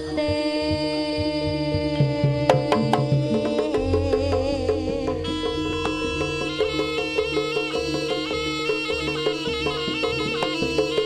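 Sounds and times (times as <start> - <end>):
hand drum strokes: 0.0 - 11.0
shawm holding a steady note: 0.0 - 11.0
deep drum: 0.3 - 10.5
sharp struck percussion: 2.6 - 11.0.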